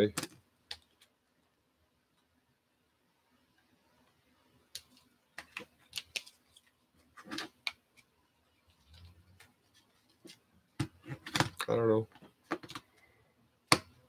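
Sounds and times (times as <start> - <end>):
plastic cases clicking together: 10.8 - 12.9.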